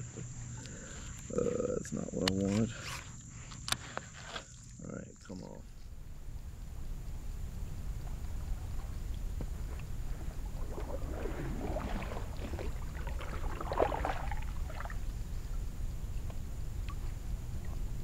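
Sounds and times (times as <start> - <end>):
steady low rumble: 4.8 - 18.0
kayak paddle splashing: 6.2 - 18.0.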